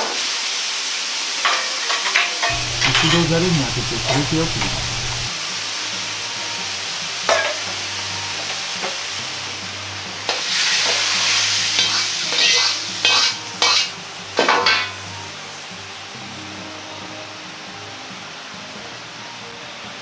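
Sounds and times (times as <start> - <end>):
steady low hum: 2.5 - 5.3
hot wok sizzling: 2.5 - 5.5, 7.1 - 14.0
sizzling bursts and steam: 2.5 - 7.2.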